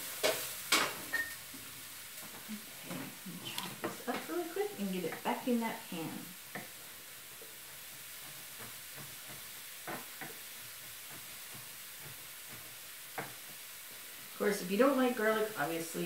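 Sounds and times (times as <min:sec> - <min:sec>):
faint hiss: 0:00.0 - 0:16.0
knife tapping cutting board: 0:08.2 - 0:13.6.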